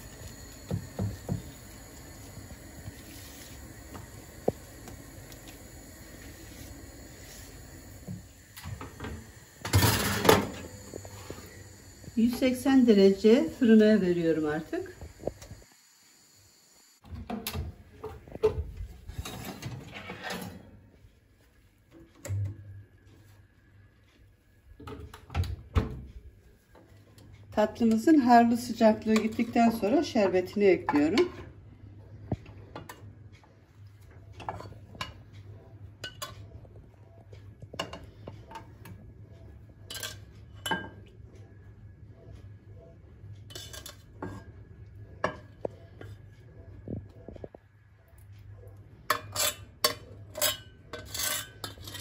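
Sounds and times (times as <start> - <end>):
oven rack rattling and scraping: 19.1 - 20.8.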